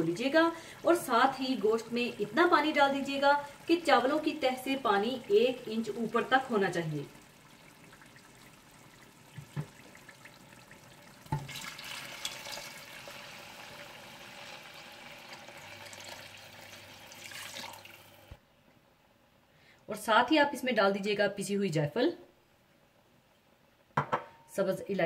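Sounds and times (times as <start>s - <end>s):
water pouring into a pot: 0.6s - 18.4s
knock: 24.0s - 24.4s.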